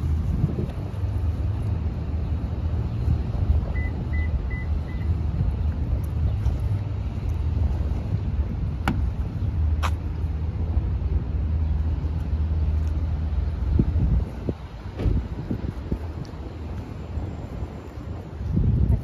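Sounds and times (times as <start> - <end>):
vehicle rumble on road: 0.0 - 19.0.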